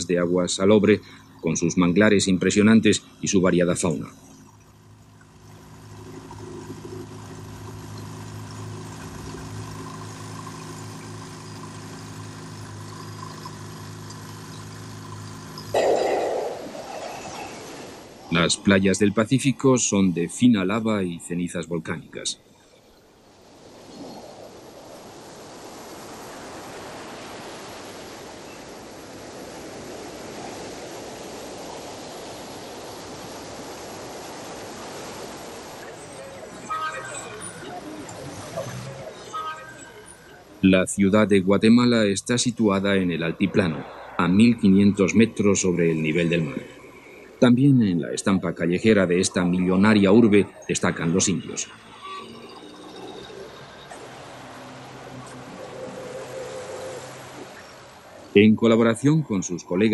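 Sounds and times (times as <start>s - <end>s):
boat motor humming: 0.0s - 59.9s
surf breaking on beach: 15.7s - 20.3s, 23.1s - 40.7s.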